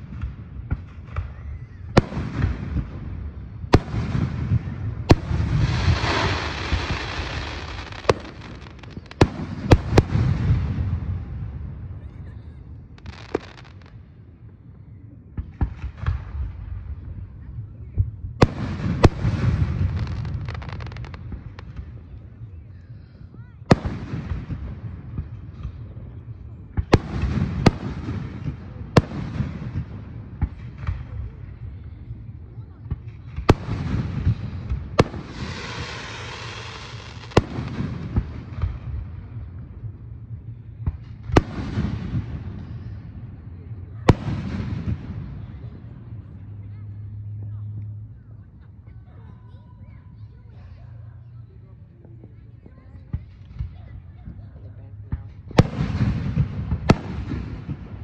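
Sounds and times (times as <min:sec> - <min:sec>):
fireworks booms: 0:00.0 - 0:14.0, 0:15.3 - 0:22.4, 0:23.6 - 0:46.3, 0:52.6 - 0:58.0
fireworks bangs and crackles: 0:00.0 - 0:49.0, 0:49.7 - 0:58.0
firework hissing: 0:05.2 - 0:09.3, 0:35.0 - 0:37.4.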